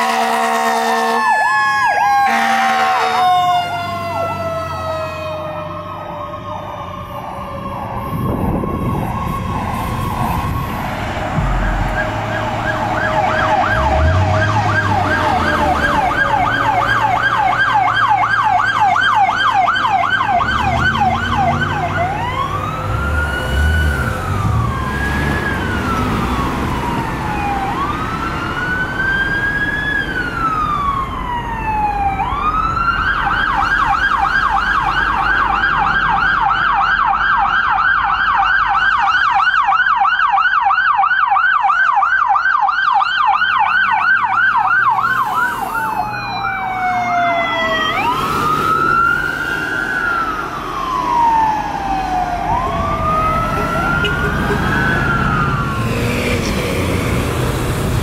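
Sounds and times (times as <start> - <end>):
siren wailing and yelping: 0.1 - 57.6
low rumble: 10.2 - 15.0.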